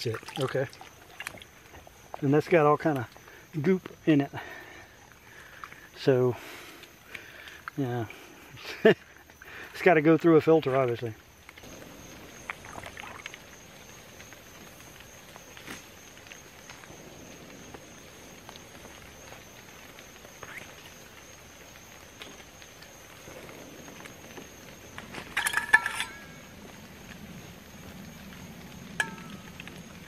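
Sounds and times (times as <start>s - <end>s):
metal water bottle clinking: 25.1s - 26.4s, 29.0s - 29.4s.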